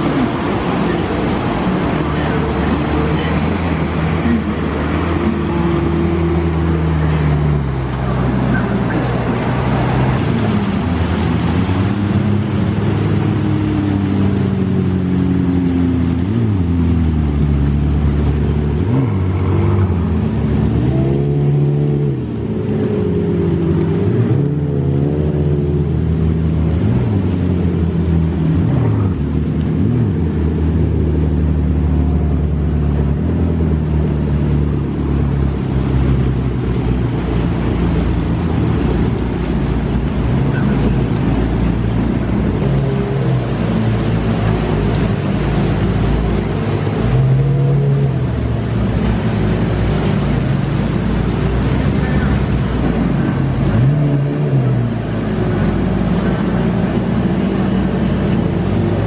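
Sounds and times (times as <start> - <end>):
supercar engines revving past: 0.0 - 59.0.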